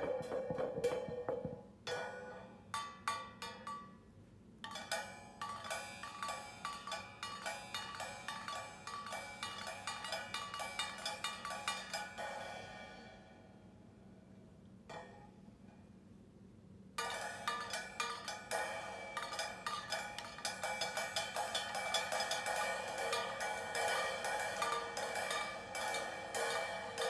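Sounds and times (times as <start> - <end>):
drumsticks clanking on cymbal: 4.6 - 13.0, 17.0 - 27.0.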